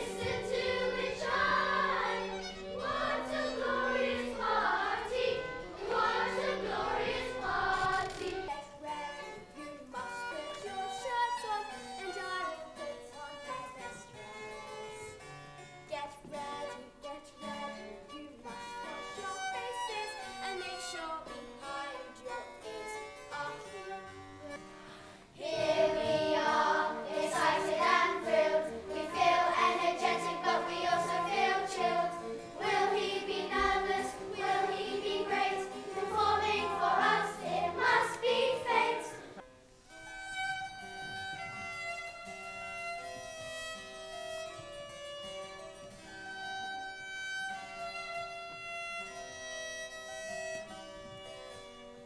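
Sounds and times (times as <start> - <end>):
chamber ensemble playing: 0.0 - 8.0, 25.3 - 39.4
solo violin: 0.0 - 52.0.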